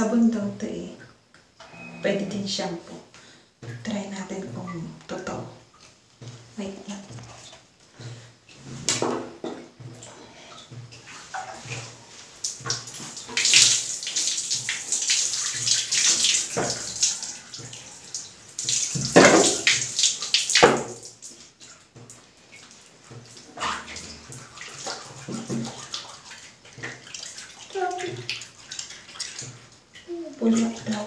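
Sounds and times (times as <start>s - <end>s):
water splashing into bathtub: 2.3s - 31.0s
water pouring over hair: 11.1s - 31.0s.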